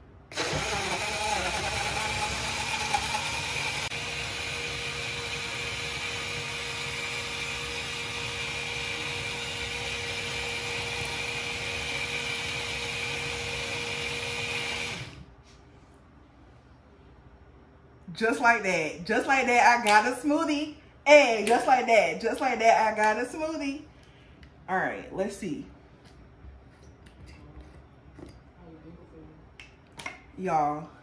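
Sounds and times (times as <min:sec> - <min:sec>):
blender motor humming: 0:00.3 - 0:15.3.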